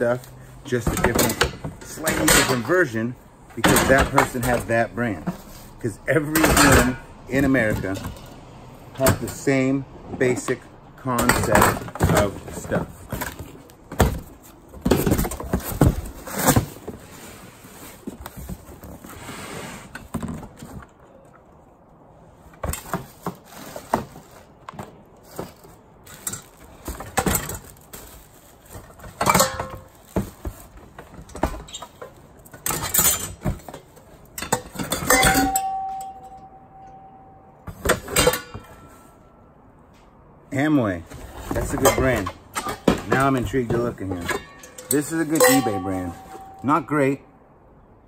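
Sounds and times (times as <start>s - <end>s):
pots and lids clinking: 0.8s - 2.7s, 6.3s - 7.0s, 29.2s - 29.9s, 34.4s - 39.0s, 41.5s - 46.8s
clear ringing tone: 35.4s - 37.6s.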